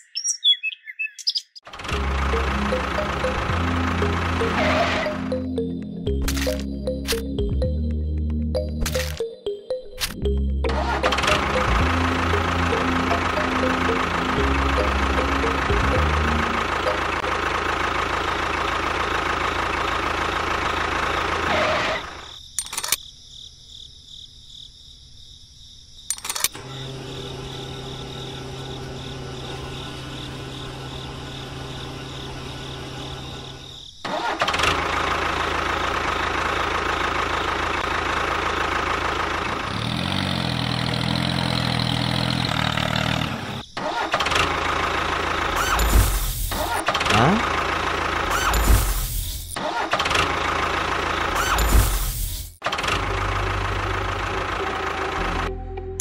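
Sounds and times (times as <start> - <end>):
miniature tractor motor running: 1.7 - 5.3, 10.7 - 22.2, 26.6 - 52.0, 52.6 - 55.4.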